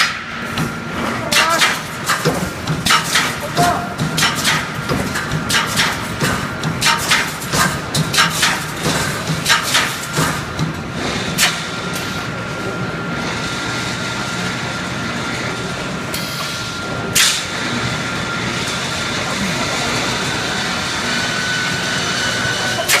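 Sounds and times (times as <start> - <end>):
welding machine sharp clacks: 0.0 - 12.2, 16.1 - 17.8, 22.3 - 23.0
steady machine noise: 0.0 - 23.0
thin steady whine: 11.6 - 23.0.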